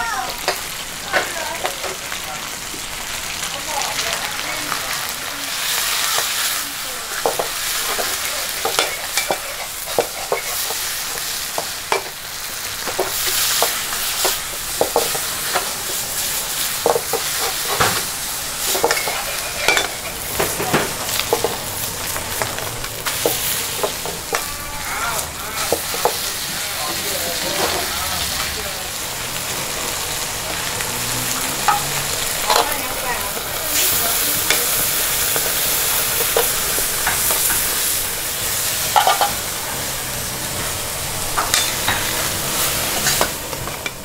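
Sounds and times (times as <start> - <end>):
food sizzling in a wok: 0.0 - 44.0
metal ladle scraping a wok: 13.0 - 20.6, 41.4 - 43.9.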